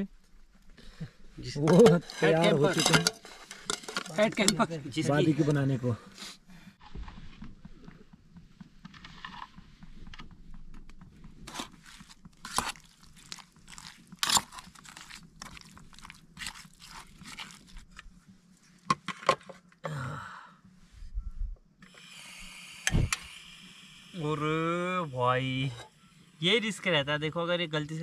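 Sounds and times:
steady hiss: 21.8s - 28.0s.

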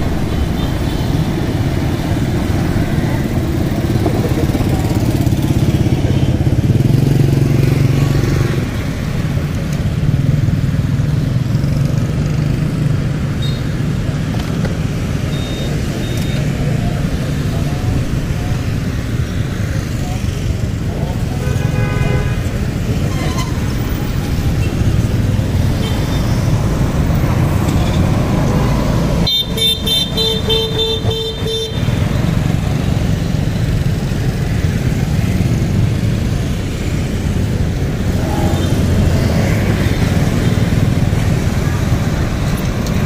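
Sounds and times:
motorbikes: 0.0s - 43.0s
street traffic rumble: 0.0s - 43.0s
vehicle horn beeping rapidly: 21.4s - 22.4s, 29.2s - 32.0s.

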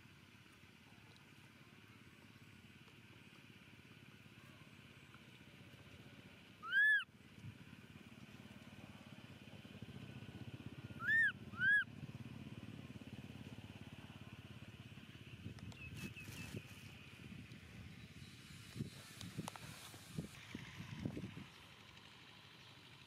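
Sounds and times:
baby macaque crying calls: 6.6s - 7.1s, 11.0s - 11.9s.

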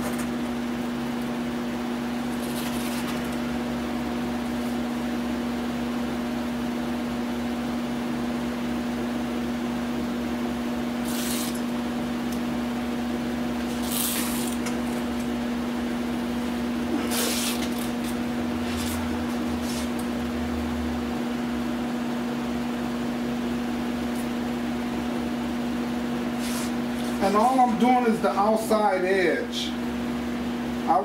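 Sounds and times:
steady machine hum: 0.0s - 31.0s
masking tape tearing off roll: 2.4s - 3.4s, 11.0s - 11.7s, 13.6s - 14.8s, 17.0s - 19.0s, 26.4s - 27.2s.

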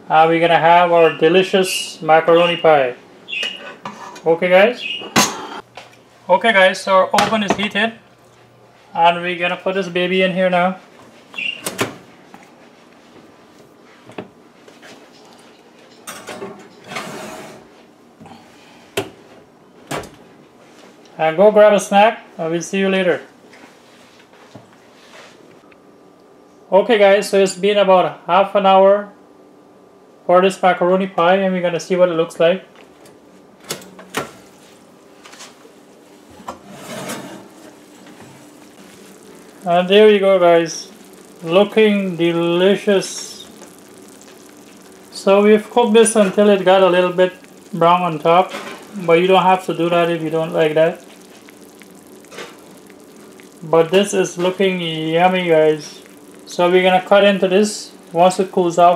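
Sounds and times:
metal pan scraping on rack: 16.8s - 17.6s, 36.5s - 37.6s.

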